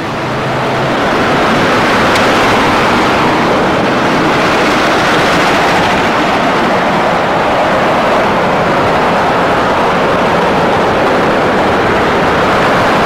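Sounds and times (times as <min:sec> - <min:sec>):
road traffic rushing: 0:00.0 - 0:13.0.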